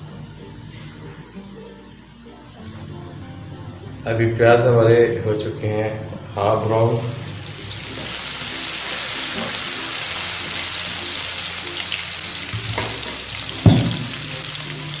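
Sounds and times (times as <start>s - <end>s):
onions sizzling in a frying pan: 6.4s - 15.0s
sharp knock: 13.6s - 14.1s.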